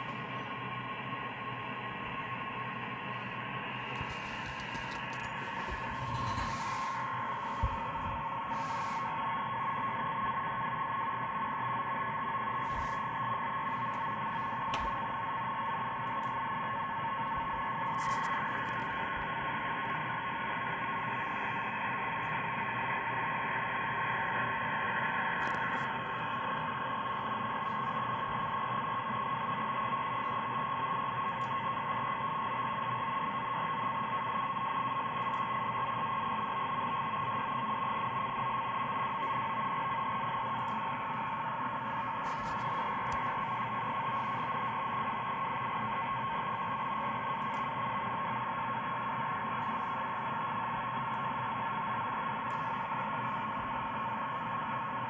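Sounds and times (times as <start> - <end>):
radio static hiss: 1.9 - 10.1, 12.5 - 16.0, 17.2 - 28.5, 40.8 - 45.1.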